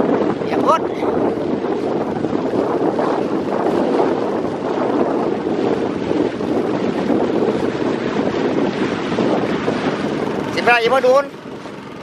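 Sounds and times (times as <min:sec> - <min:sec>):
boat engine running: 0:00.0 - 0:12.0
wind buffeting microphone: 0:00.0 - 0:12.0.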